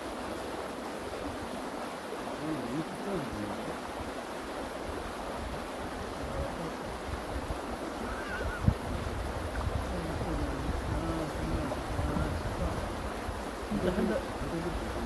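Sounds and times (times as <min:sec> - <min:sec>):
wind buffeting microphone: 0:04.8 - 0:15.0.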